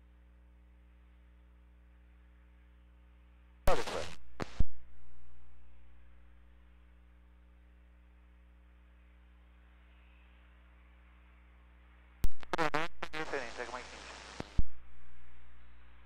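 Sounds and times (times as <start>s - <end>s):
low electrical hum and hiss: 0.0s - 7.1s, 12.2s - 16.0s
radio transmission click: 3.7s - 6.0s, 12.2s - 16.0s.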